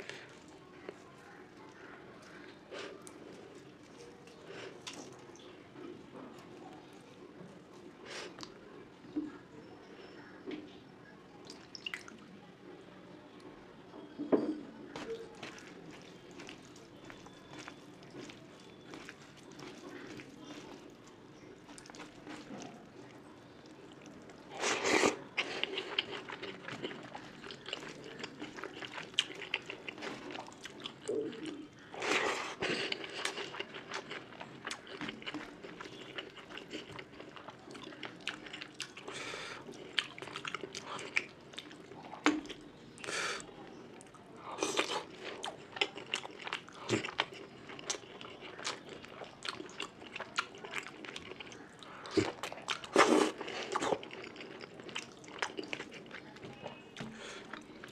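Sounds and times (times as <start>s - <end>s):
person chewing and smacking: 15.0s - 22.8s, 23.7s - 43.1s, 44.1s - 57.9s.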